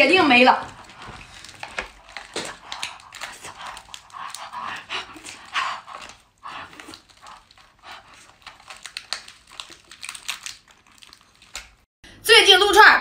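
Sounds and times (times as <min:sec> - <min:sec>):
hard breaths: 0:00.6 - 0:10.2
slurping and sucking shellfish: 0:00.7 - 0:11.9.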